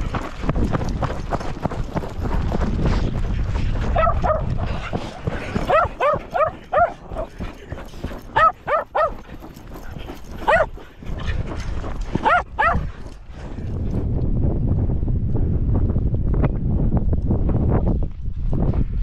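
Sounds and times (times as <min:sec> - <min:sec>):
wind on microphone: 0:00.0 - 0:19.0
dog barking: 0:04.0 - 0:04.5, 0:05.6 - 0:07.4, 0:08.2 - 0:09.3, 0:10.4 - 0:10.8, 0:12.2 - 0:12.9.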